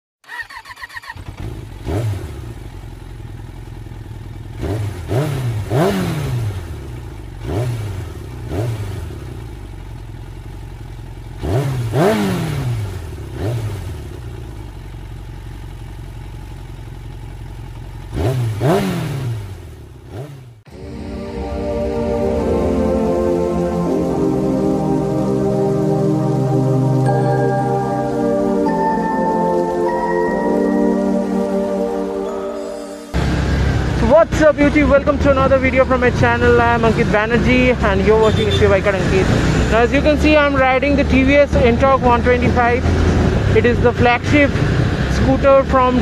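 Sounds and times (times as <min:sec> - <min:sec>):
motorcycle engine revving: 0:00.2 - 0:22.7, 0:33.1 - 0:46.0.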